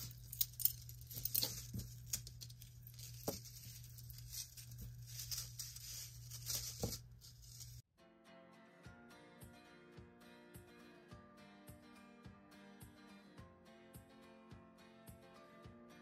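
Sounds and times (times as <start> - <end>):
metal chains clinking: 0.0 - 3.2.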